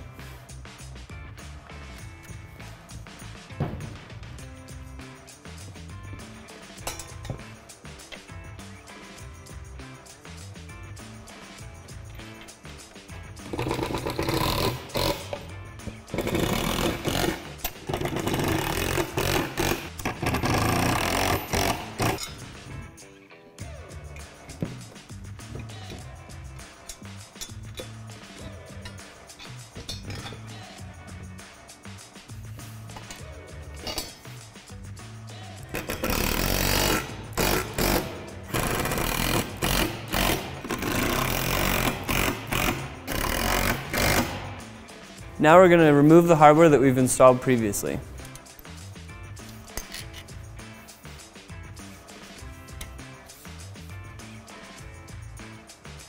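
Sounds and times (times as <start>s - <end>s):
cordless drill driving bolts: 16.2s - 22.2s.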